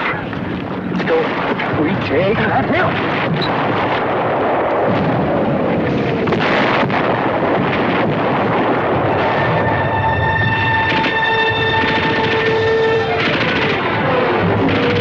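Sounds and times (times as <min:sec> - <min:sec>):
rumble of explosions: 0:00.0 - 0:15.0
sharp bangs: 0:01.0 - 0:15.0
falling whistle: 0:09.5 - 0:13.2.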